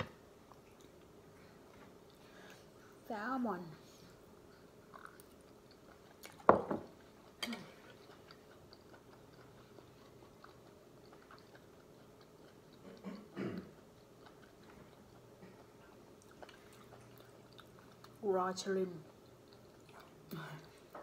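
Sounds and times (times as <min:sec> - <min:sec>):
person chewing: 0:04.2 - 0:18.2, 0:19.0 - 0:21.0.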